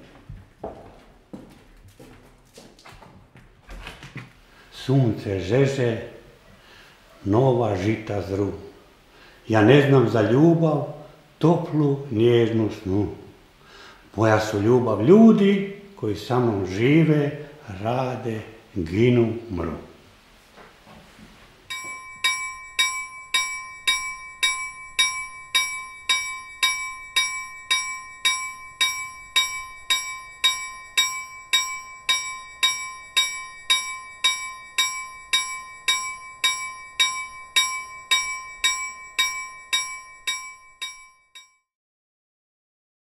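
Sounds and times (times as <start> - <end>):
bell ringing: 21.7 - 41.6.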